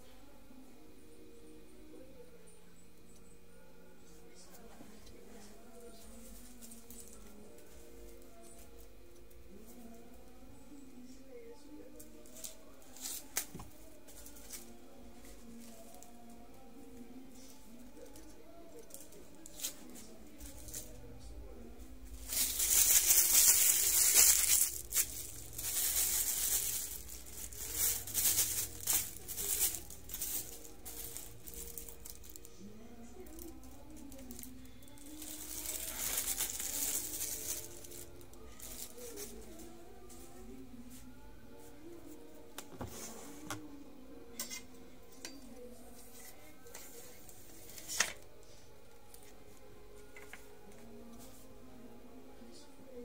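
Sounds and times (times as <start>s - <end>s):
faint steady hum: 0.0s - 53.0s
plastic wrapping crinkling: 5.8s - 10.0s, 22.1s - 40.3s.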